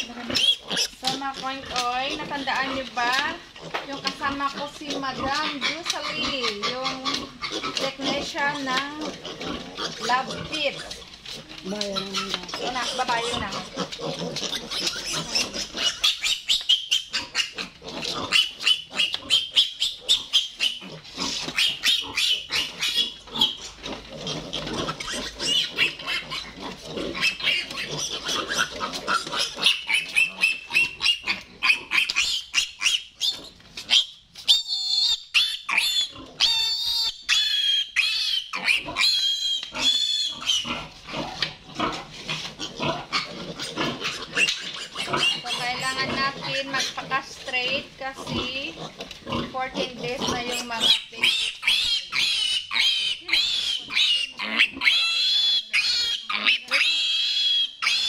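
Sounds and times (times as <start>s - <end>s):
piglet squealing: 0.0s - 3.4s, 4.1s - 11.0s, 11.6s - 47.1s, 49.3s - 58.0s.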